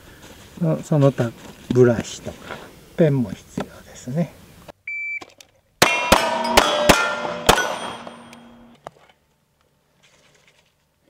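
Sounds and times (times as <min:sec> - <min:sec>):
pistol shots: 0:05.8 - 0:08.6
steel targets clanging: 0:05.8 - 0:08.7.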